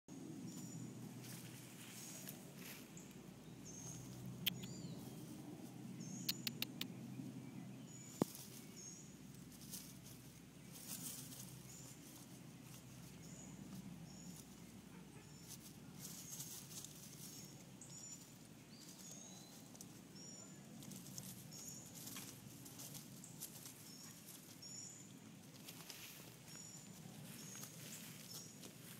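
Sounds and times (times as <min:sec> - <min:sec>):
rustling and scratching in leaves: 0:00.4 - 0:05.9, 0:07.9 - 0:28.9
sharp clicks: 0:04.5 - 0:04.8, 0:06.2 - 0:06.9.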